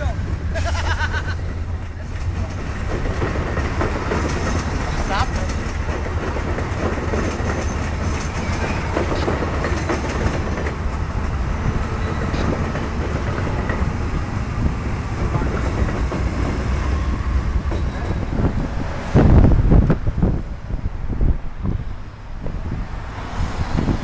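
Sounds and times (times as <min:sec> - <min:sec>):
train wheels rumbling on track: 0:00.0 - 0:24.0
clicking over rail joints: 0:01.8 - 0:18.7
wind buffeting microphone: 0:02.1 - 0:24.0.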